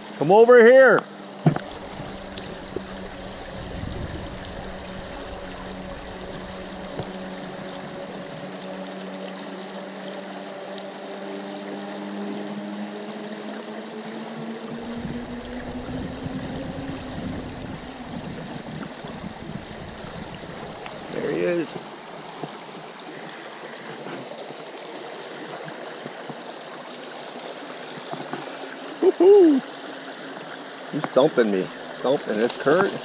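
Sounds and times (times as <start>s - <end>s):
creek water rushing: 0.0s - 33.0s
low hum with overtones: 1.6s - 9.7s, 12.3s - 21.2s.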